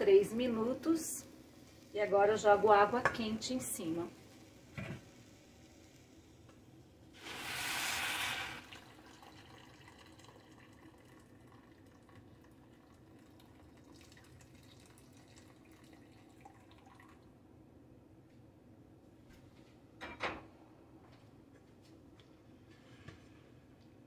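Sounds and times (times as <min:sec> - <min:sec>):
hot water hissing: 0:00.0 - 0:16.6
water pouring from kettle: 0:07.2 - 0:17.3.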